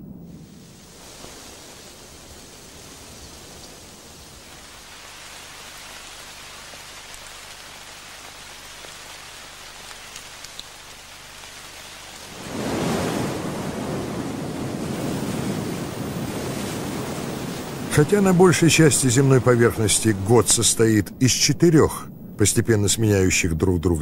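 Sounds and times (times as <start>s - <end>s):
wind hissing: 0.0s - 24.0s
deep rushing noise: 17.2s - 23.2s.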